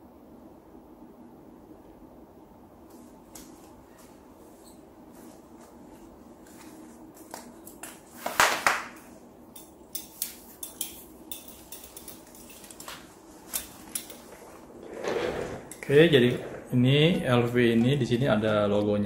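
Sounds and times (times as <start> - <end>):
metal buckle clicking and clinking: 9.6 - 12.9.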